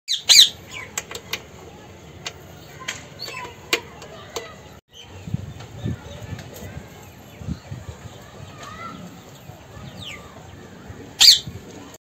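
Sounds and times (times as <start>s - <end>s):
parakeets chirping: 0.1s - 0.9s, 11.1s - 11.6s.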